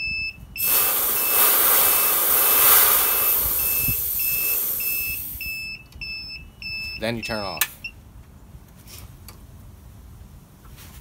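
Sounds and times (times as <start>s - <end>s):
electronic beeper: 0.0s - 7.0s
high-pressure air hissing: 0.6s - 5.5s.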